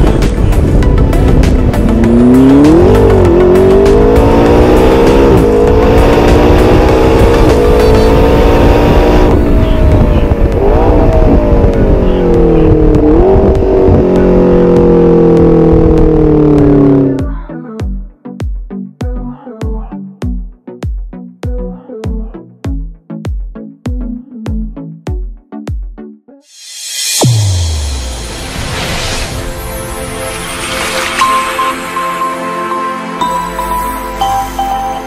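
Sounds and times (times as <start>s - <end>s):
car engine revving through gears: 1.2s - 17.2s.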